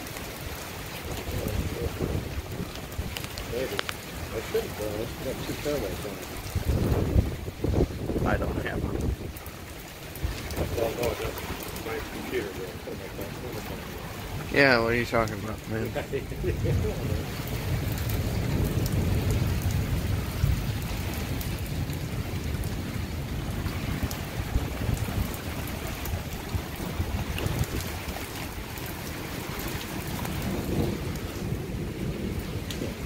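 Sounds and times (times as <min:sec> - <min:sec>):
rain: 0:00.0 - 0:33.0
storm wind buffeting microphone: 0:00.4 - 0:33.0
small ticks: 0:03.1 - 0:04.0.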